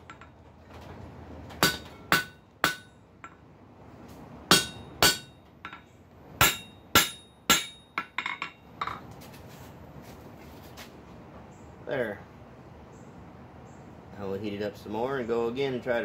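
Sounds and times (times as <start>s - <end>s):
hammer striking hot steel: 1.6s - 3.4s, 4.5s - 5.8s, 6.4s - 8.6s.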